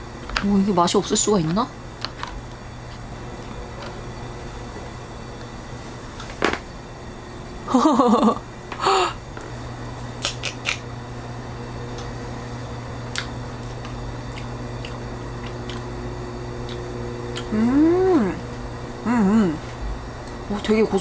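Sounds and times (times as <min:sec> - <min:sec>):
steady low hum: 0:00.0 - 0:21.0
mouth clicks: 0:10.2 - 0:10.8
quiet chewing: 0:13.1 - 0:15.9, 0:16.6 - 0:17.5
person saying mmm: 0:17.4 - 0:18.4, 0:19.0 - 0:19.6.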